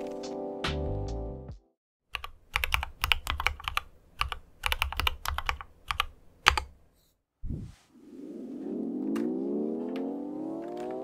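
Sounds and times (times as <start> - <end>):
music: 0.0 - 1.8
keyboard typing: 2.1 - 6.7.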